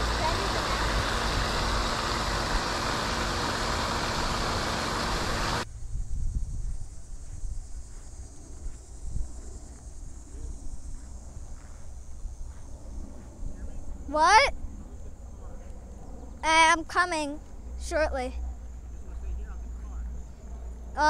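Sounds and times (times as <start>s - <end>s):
fountain spraying water: 0.0s - 5.6s
low hum: 0.0s - 21.0s.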